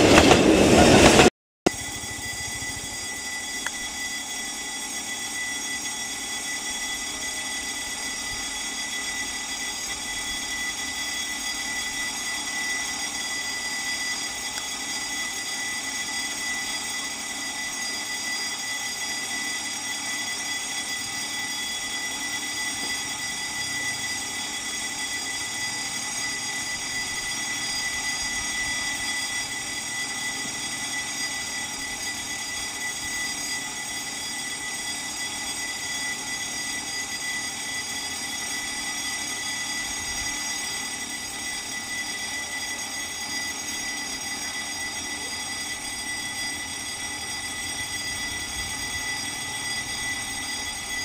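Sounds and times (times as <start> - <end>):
diesel locomotive engine running: 0.0 - 5.0
steady high-pitched whine: 0.0 - 51.0.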